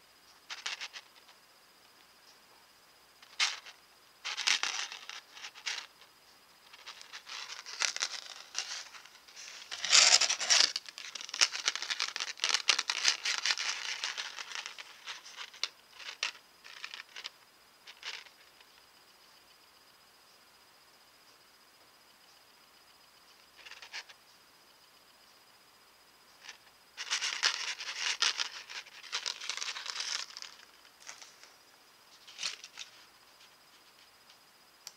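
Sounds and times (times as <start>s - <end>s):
paper rustling and crinkling: 6.7s - 17.3s, 26.4s - 34.1s.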